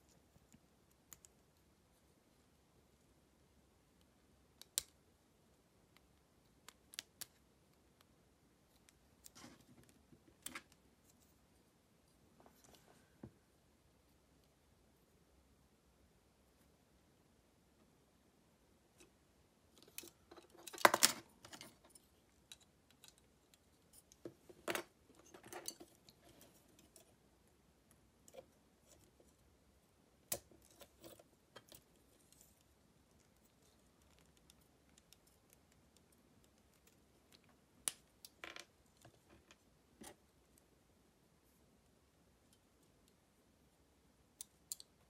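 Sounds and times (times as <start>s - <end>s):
plastic parts clicking and rattling: 19.8s - 27.2s.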